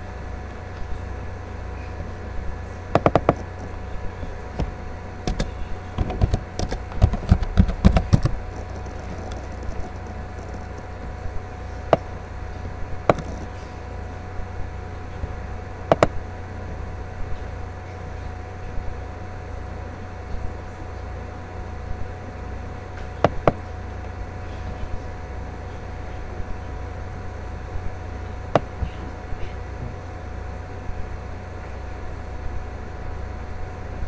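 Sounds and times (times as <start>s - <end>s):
steady low hum: 0.0s - 34.0s
sharp clicks and taps: 3.0s - 3.5s, 4.6s - 10.9s, 13.1s - 13.5s, 15.9s - 16.1s.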